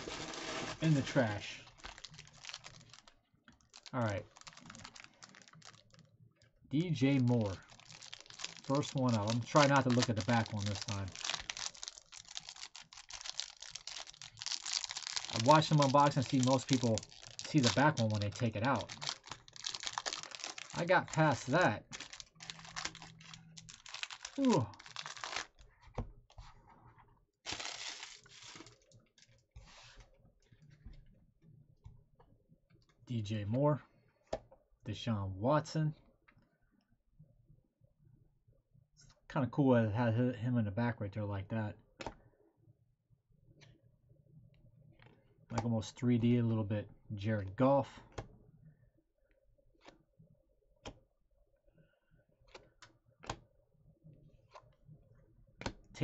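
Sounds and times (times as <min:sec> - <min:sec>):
plastic wrapper crinkling and tearing: 0:00.0 - 0:06.1, 0:07.0 - 0:25.6, 0:27.5 - 0:29.3.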